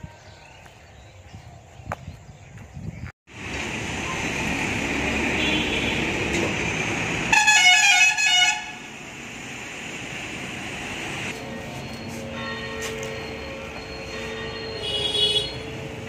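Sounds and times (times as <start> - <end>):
street traffic: 0.0 - 16.0
vehicle horn with changing notes: 5.4 - 6.2, 7.3 - 8.9, 14.1 - 15.8.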